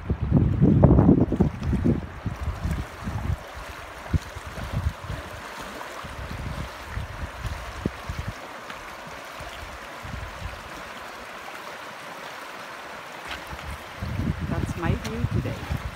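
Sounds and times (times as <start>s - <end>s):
wind buffeting microphone: 0.0s - 8.4s, 9.4s - 10.8s, 13.4s - 15.9s
river flowing over rocks: 1.9s - 15.9s.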